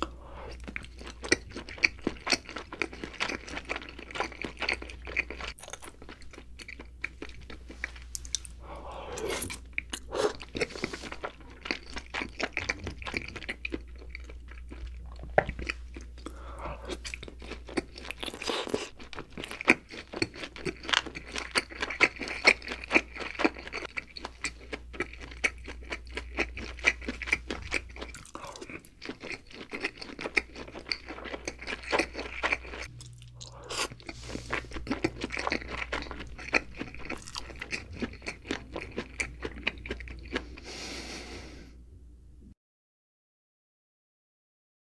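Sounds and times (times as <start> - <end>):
wet chewing clicks and squelches: 9.5 - 40.5.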